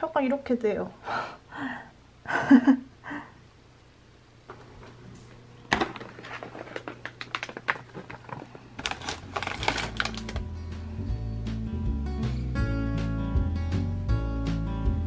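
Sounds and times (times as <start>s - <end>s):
plastic wrappers crinkling: 5.7s - 10.5s.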